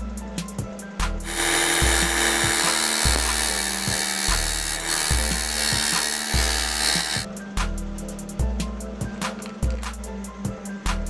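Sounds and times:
background music with beat: 0:00.0 - 0:11.0
belt sander sanding wood: 0:01.2 - 0:07.3.

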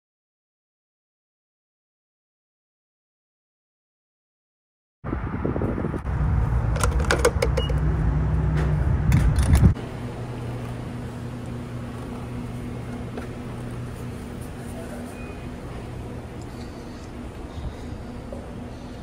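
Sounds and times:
fuel flowing through nozzle hum: 0:05.1 - 0:19.0
steady appliance hum: 0:06.1 - 0:19.0.

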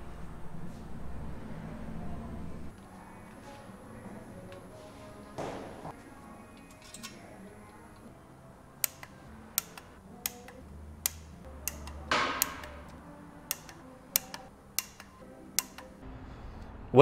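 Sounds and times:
hand ratchet clicking: 0:08.8 - 0:12.9, 0:13.5 - 0:16.0.

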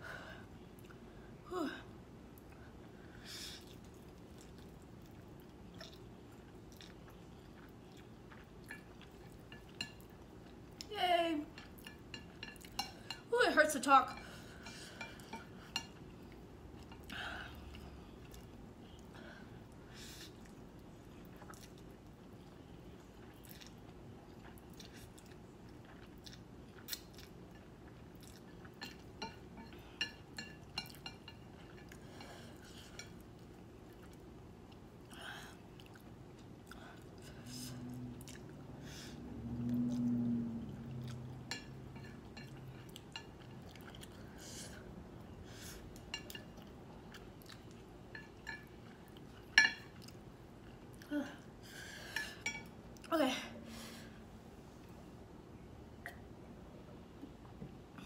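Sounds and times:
chewing and slurping noodles: 0:03.6 - 0:10.6, 0:20.2 - 0:22.5, 0:23.2 - 0:38.6, 0:39.6 - 0:44.9
low hum: 0:37.2 - 0:42.0.

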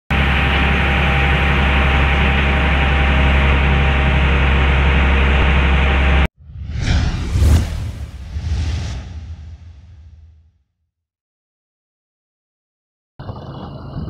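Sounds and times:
boat engine droning: 0:00.1 - 0:06.3
whoosh sound effect: 0:06.4 - 0:10.4.

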